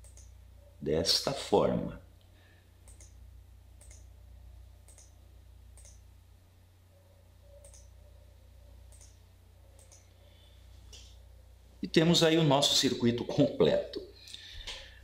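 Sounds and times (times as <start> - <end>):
computer mouse clicks: 0.0 - 0.3, 2.8 - 3.2, 3.8 - 4.1, 4.8 - 5.2, 5.8 - 6.0, 7.5 - 7.9, 8.9 - 9.2, 9.8 - 10.1
low steady hum: 0.0 - 15.0.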